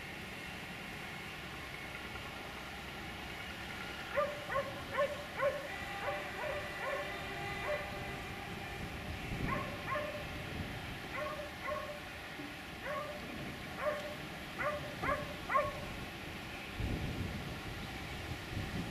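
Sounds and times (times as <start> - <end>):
dog barking: 4.1 - 7.9, 9.4 - 10.2, 11.1 - 12.0, 12.8 - 13.2, 13.8 - 15.8.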